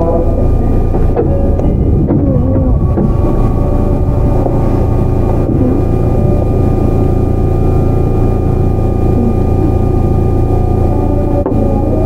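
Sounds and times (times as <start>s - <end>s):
electric train rumble: 0.0s - 12.0s
steady whining tones: 0.0s - 12.0s.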